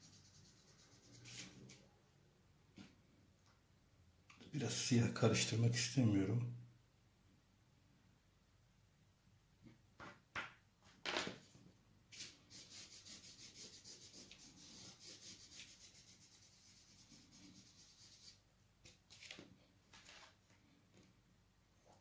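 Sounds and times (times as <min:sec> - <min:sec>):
pencil strokes scratching paper: 0:00.0 - 0:01.8, 0:12.1 - 0:19.0.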